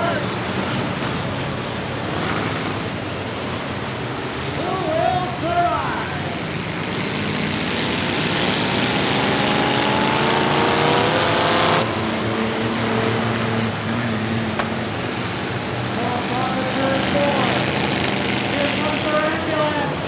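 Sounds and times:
racing car engines: 0.0s - 20.0s
engine revving up: 4.2s - 20.0s.

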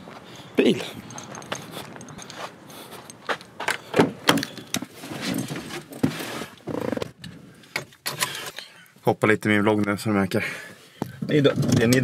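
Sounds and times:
car keys jangling: 0.9s - 3.3s.

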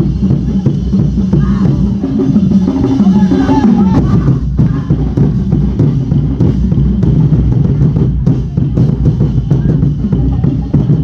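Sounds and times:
drum ensemble playing: 0.0s - 11.0s.

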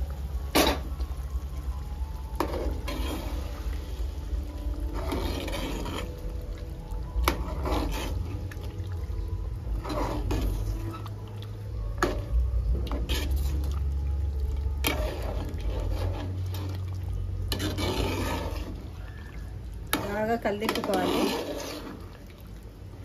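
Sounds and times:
steady low rumble: 0.0s - 20.5s
spoon stirring wet food in pot: 0.0s - 23.0s.

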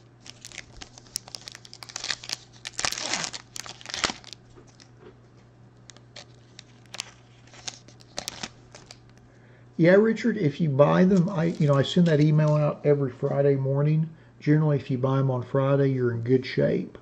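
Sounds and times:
foil wrapper tearing and crinkling: 0.0s - 4.9s, 5.9s - 9.2s, 11.1s - 12.6s.

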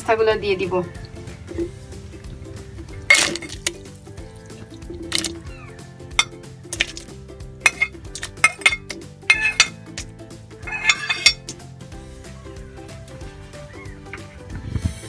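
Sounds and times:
metal utensil scraping a pan: 6.1s - 11.6s.

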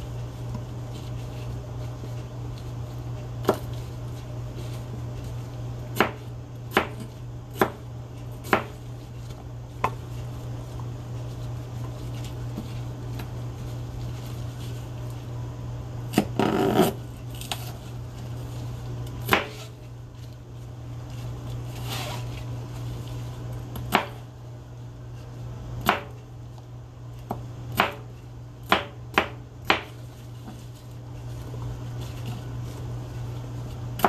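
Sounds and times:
steady low hum: 0.0s - 34.0s
knife chopping on plastic board: 3.4s - 3.7s, 5.9s - 8.8s, 19.2s - 19.7s, 23.7s - 24.2s, 25.8s - 26.2s, 27.3s - 30.6s.

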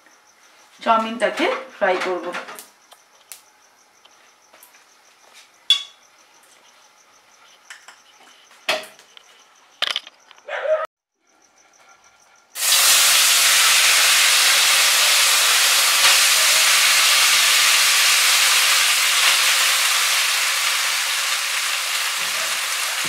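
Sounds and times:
noodles sizzling in hot oil: 12.6s - 23.0s.

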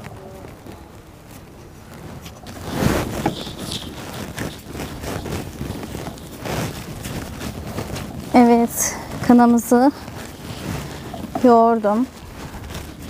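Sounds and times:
plastic gloves rustling: 1.1s - 13.0s
paste squelching: 2.4s - 8.4s, 9.0s - 11.6s.

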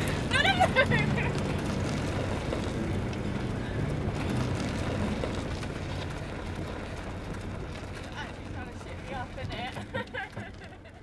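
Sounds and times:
small motorbike engine humming: 0.0s - 8.5s.

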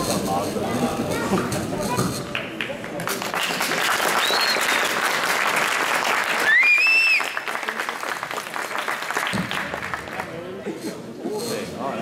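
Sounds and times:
crowd applauding: 2.3s - 10.5s
high whistle: 4.2s - 4.9s, 6.4s - 7.5s.

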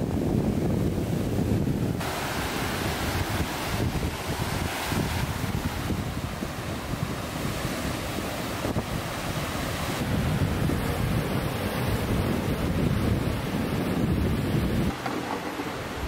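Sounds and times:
sea waves breaking on beach: 0.0s - 16.0s
wind buffeting microphone: 0.0s - 16.0s.

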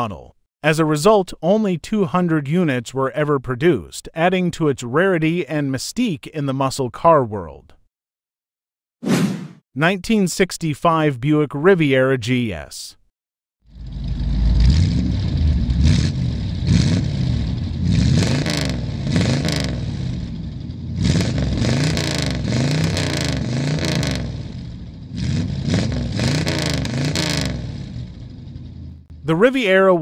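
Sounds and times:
car engine revving: 13.7s - 29.4s.

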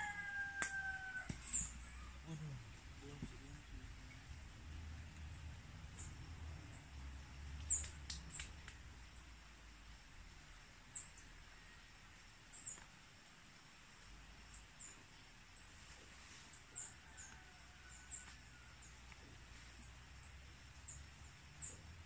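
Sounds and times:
quiet rural background noise: 0.0s - 22.0s
small birds chirping: 1.2s - 4.4s, 7.6s - 8.8s, 12.5s - 12.9s, 14.4s - 22.0s.

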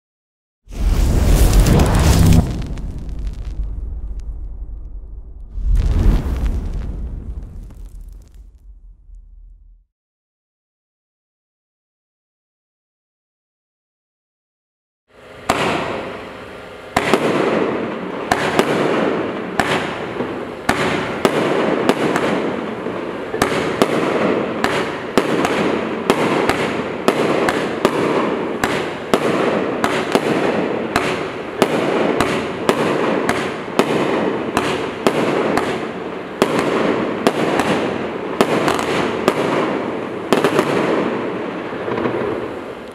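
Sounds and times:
firework crackle: 0.7s - 9.8s, 17.0s - 42.9s
firework shots and bursts: 0.7s - 9.8s, 15.4s - 42.9s.

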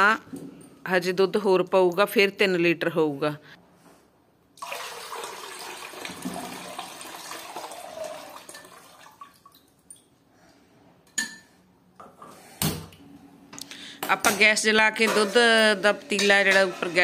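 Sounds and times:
milk pouring into a pot: 4.6s - 9.7s.

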